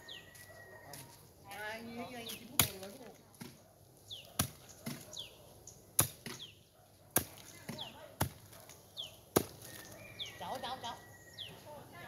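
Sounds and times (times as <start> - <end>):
hoe chopping into earth: 4.3 - 5.1, 5.9 - 8.6, 9.3 - 9.9.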